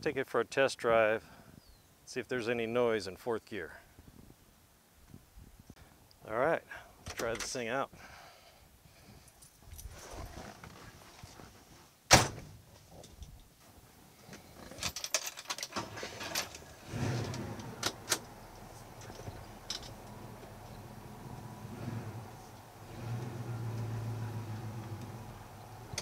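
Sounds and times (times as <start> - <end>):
car door slamming: 12.1 - 12.5
clicks and rattles: 14.6 - 20.8
car engine idling: 16.8 - 26.0.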